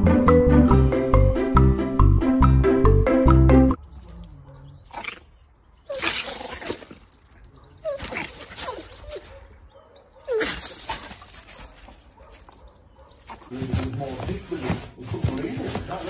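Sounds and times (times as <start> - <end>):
dog barking: 4.4 - 4.8, 7.5 - 13.6
dogs scuffling on gravel: 5.9 - 16.0.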